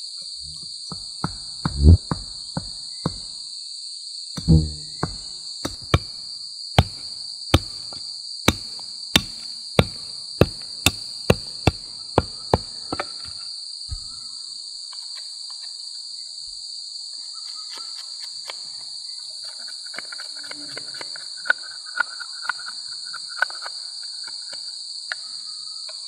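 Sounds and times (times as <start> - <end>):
insect chorus: 0.0 - 26.0
hatchet chopping wood: 0.9 - 3.4, 4.4 - 6.2, 6.8 - 14.1.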